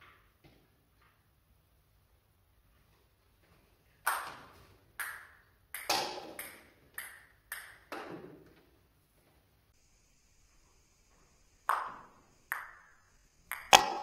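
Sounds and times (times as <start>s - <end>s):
ping pong ball bouncing on floor: 4.1s - 8.3s, 11.7s - 14.0s.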